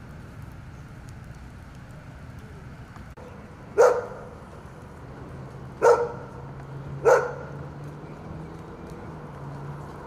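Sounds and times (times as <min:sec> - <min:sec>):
low steady hum: 0:00.0 - 0:06.9
dog barking: 0:03.8 - 0:04.3, 0:05.8 - 0:06.4, 0:07.0 - 0:07.6.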